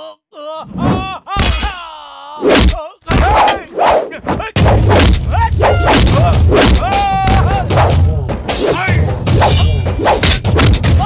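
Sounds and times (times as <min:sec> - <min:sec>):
men grunting and crying out: 0:00.0 - 0:08.2
punch and thud impacts: 0:02.5 - 0:03.6, 0:04.6 - 0:07.9, 0:10.2 - 0:11.0.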